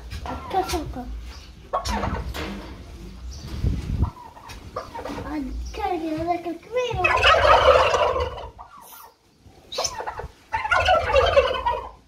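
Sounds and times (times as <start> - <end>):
turkey flock calling: 0.0 - 2.4, 4.0 - 5.3, 6.9 - 12.0
turkey gobbling: 1.6 - 2.3, 4.0 - 5.3, 7.0 - 12.0.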